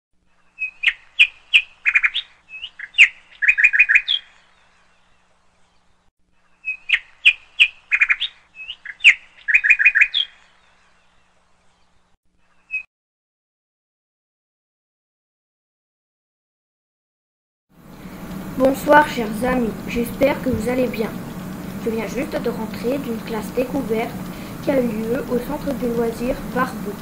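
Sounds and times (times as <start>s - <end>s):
songbird chirping and trilling: 0.3s - 12.9s.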